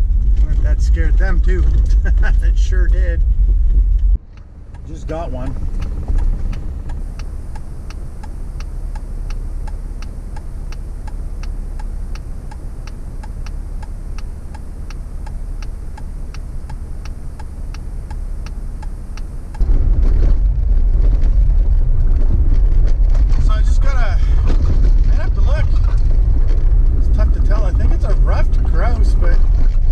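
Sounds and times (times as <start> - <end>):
car driving off: 0.0 - 29.9
car engine idling: 0.0 - 29.9
steady ticking: 3.9 - 19.6.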